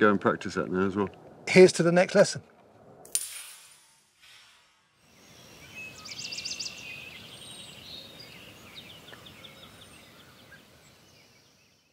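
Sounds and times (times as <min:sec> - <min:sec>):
songbirds chirping and trilling: 0:05.1 - 0:11.9.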